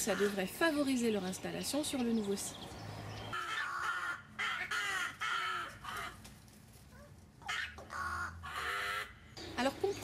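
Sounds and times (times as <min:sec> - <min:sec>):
rooks cawing: 0:03.3 - 0:06.2, 0:07.4 - 0:09.4.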